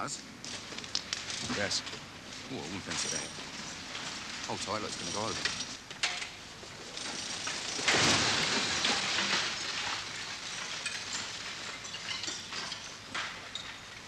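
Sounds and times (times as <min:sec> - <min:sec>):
rubble crackling and clattering: 0:00.4 - 0:14.0
wall collapsing with a crash: 0:06.9 - 0:13.5.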